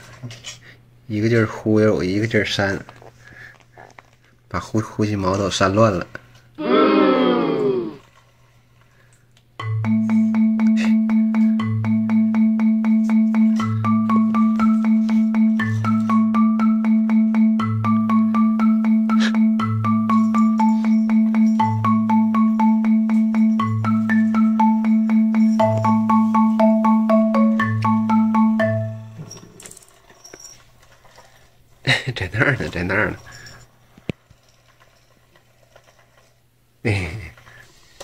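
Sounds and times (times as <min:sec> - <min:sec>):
marimba-like melody over a beat: 0:09.6 - 0:29.3.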